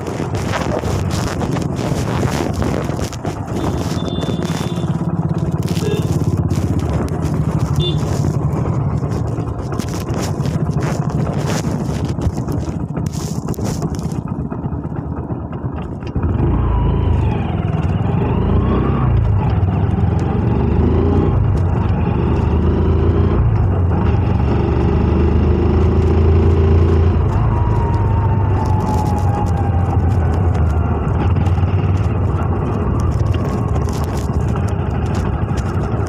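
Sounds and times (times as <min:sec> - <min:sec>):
wind buffeting microphone: 0:00.0 - 0:14.4, 0:27.1 - 0:36.0
motorcycle engine running: 0:00.0 - 0:36.0.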